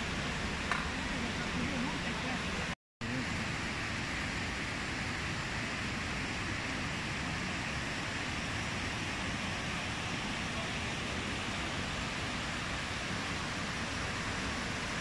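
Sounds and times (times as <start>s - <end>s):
fountain water cascading: 0.0s - 15.0s.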